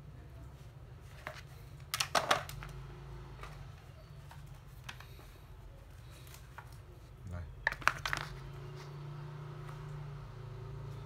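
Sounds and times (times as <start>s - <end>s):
plastic charger handling clatter: 1.1s - 2.8s, 7.6s - 8.4s.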